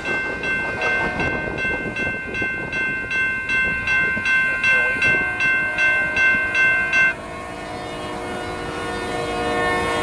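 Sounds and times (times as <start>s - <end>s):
crossing warning bell ringing: 0.0s - 10.0s
locomotive air horn: 5.0s - 10.0s.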